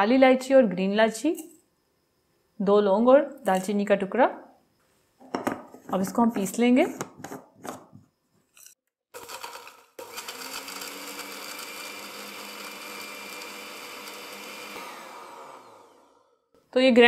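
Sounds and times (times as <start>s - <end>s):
mixer grinder whirring: 9.1s - 16.5s.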